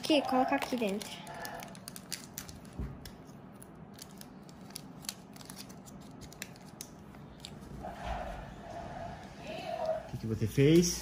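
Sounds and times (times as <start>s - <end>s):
plastic packets clicking and crinkling: 0.0s - 7.6s.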